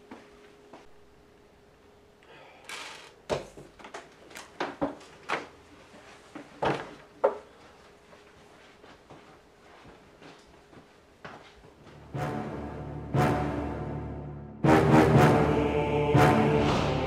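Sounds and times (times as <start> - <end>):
faint steady hum: 0.0 - 12.0
chairs and objects moved: 2.7 - 12.0.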